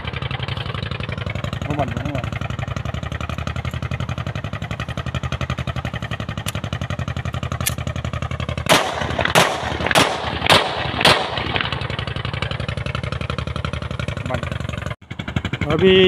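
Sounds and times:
engine idling: 0:00.0 - 0:16.0
pistol shots: 0:08.7 - 0:11.7.

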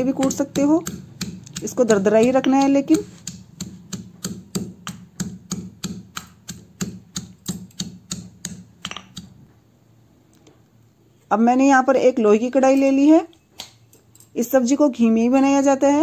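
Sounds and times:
stone pestle pounding in mortar: 0:00.0 - 0:09.4.

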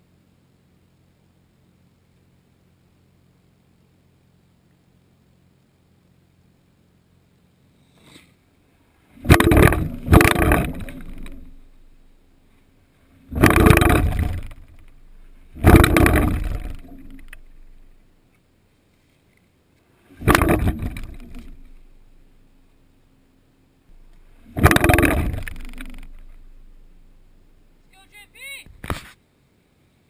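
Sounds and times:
bike tyres rumbling on planks: 0:09.2 - 0:12.2, 0:13.2 - 0:18.0, 0:20.2 - 0:22.3, 0:23.9 - 0:27.8.

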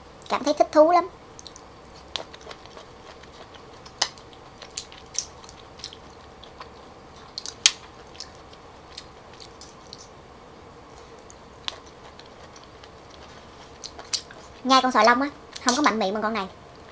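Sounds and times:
faint steady hum: 0:00.0 - 0:16.9
wet mouth smacks chewing: 0:01.4 - 0:10.1, 0:11.0 - 0:14.6.

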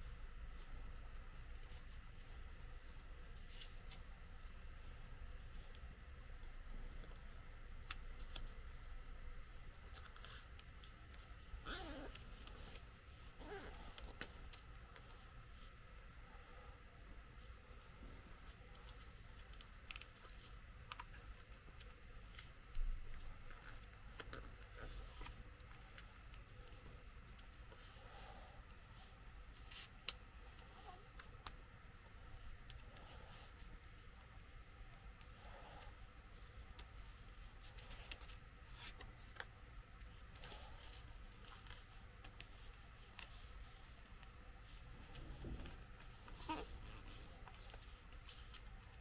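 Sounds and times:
low steady hum: 0:00.0 - 0:49.0
paper being folded by hand: 0:17.7 - 0:49.0
paper rustling and crinkling: 0:35.3 - 0:49.0.

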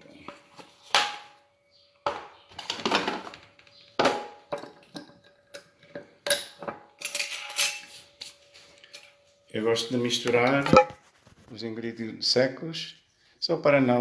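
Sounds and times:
kitchen items knocking and clunking: 0:02.0 - 0:07.9, 0:10.2 - 0:11.0.

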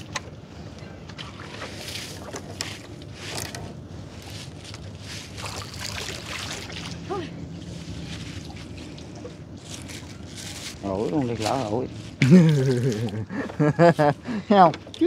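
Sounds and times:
steady low hum: 0:00.0 - 0:15.0
water splashing and dripping off net: 0:05.3 - 0:07.1.

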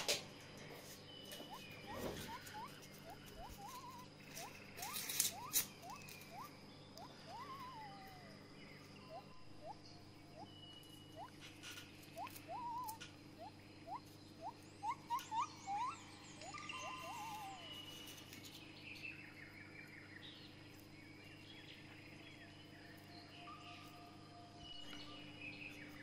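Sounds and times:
steady low hum: 0:00.0 - 0:26.0
animal chirps and trills: 0:00.8 - 0:18.7.

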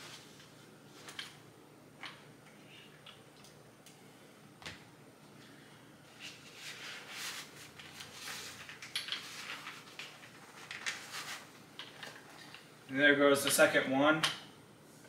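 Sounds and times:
rubbing and scraping: 0:06.1 - 0:11.5.

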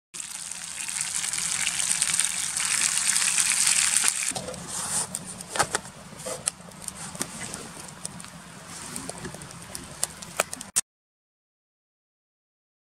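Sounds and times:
sauce sizzling in a hot pan: 0:00.2 - 0:04.3
wood fire crackling: 0:00.2 - 0:10.8.

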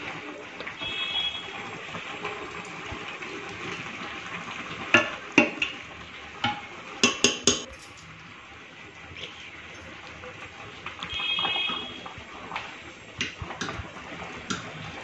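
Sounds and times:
metal utensil knocking on pot rim: 0:06.5 - 0:07.7.

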